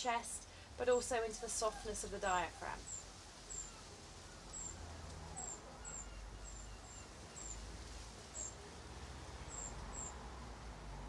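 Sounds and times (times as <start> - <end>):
small birds chirping: 1.3 - 7.7, 8.3 - 8.7, 9.4 - 10.2.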